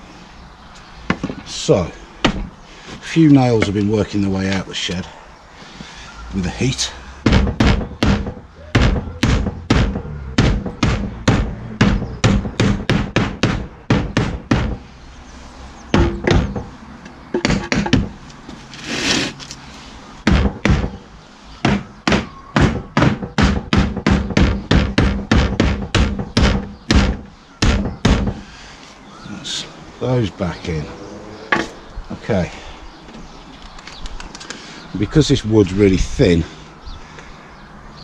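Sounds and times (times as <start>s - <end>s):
hammer knocking nails into wood: 7.2s - 14.8s, 15.9s - 16.7s, 17.4s - 18.2s, 20.2s - 21.0s, 21.6s - 28.4s.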